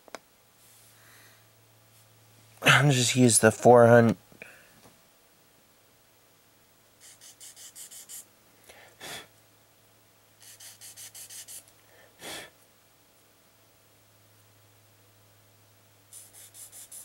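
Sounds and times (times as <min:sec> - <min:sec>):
sandpaper rubbing on plastic: 0:07.0 - 0:08.3, 0:10.4 - 0:11.7, 0:16.1 - 0:17.0
puff of breath blowing: 0:12.0 - 0:12.5.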